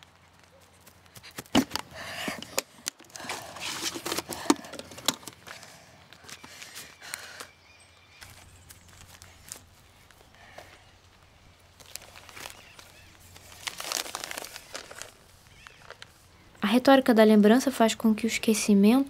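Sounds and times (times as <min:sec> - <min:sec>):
paper envelopes rustling: 0:03.2 - 0:07.5, 0:08.2 - 0:16.2.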